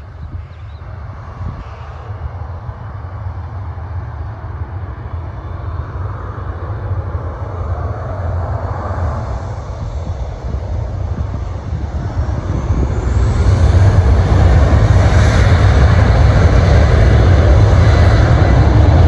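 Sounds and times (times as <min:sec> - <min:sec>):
jet engines running: 0:00.0 - 0:19.0
wind buffeting microphone: 0:00.0 - 0:19.0.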